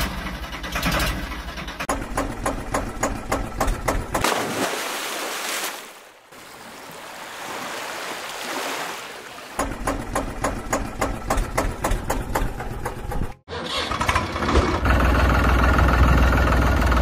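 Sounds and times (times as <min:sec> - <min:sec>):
engine chugging: 0:00.0 - 0:04.2, 0:09.6 - 0:17.0.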